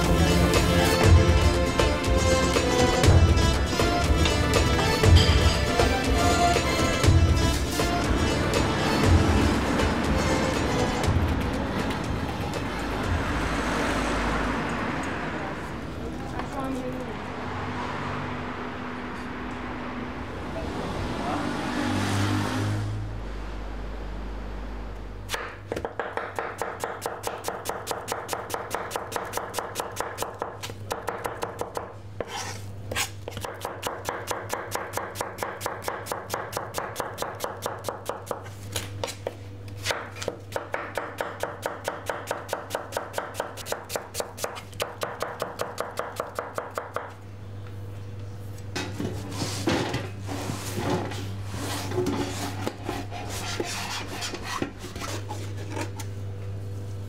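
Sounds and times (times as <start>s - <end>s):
onion scraped across board: 32.2s - 33.6s, 49.1s - 56.1s.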